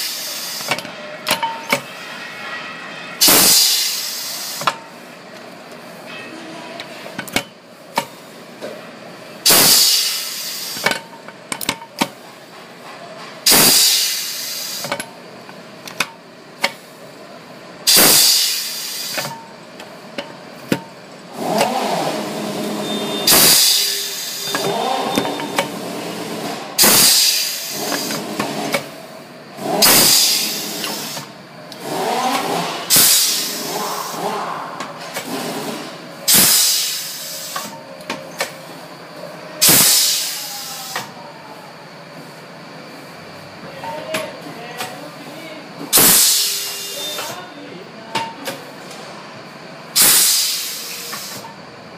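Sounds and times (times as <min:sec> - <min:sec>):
compressed air hissing blasts: 0:03.2 - 0:04.7, 0:09.4 - 0:10.9, 0:13.5 - 0:15.0, 0:17.9 - 0:19.3, 0:23.2 - 0:24.6, 0:26.8 - 0:28.3, 0:29.8 - 0:31.3, 0:32.9 - 0:34.3, 0:36.3 - 0:37.7, 0:39.6 - 0:40.4, 0:45.9 - 0:47.0, 0:50.0 - 0:51.4.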